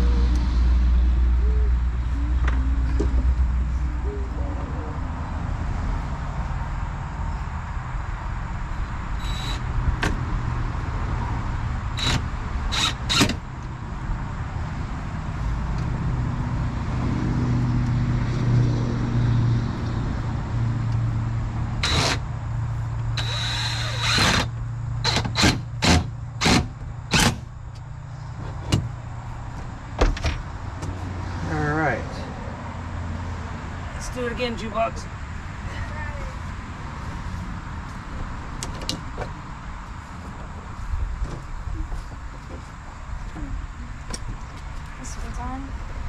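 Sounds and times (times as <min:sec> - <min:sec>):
low motor hum: 0:00.0 - 0:31.3.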